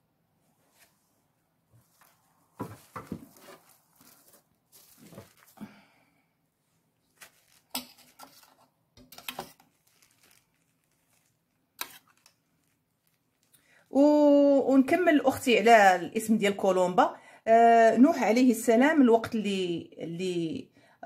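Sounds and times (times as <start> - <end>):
cling film rustling and crinkling: 1.7 - 5.9, 7.0 - 13.9.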